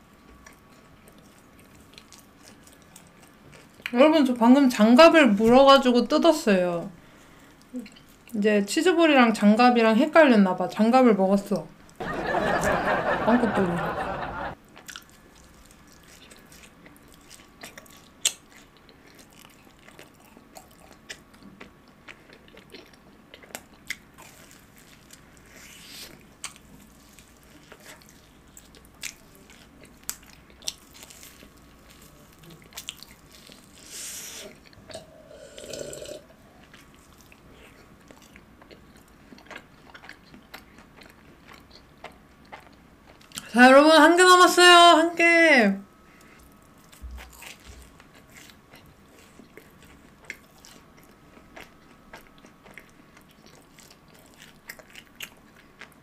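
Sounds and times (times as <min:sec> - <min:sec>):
person chewing crunchy food: 0:00.2 - 0:03.9, 0:14.6 - 0:43.5, 0:46.1 - 0:56.0.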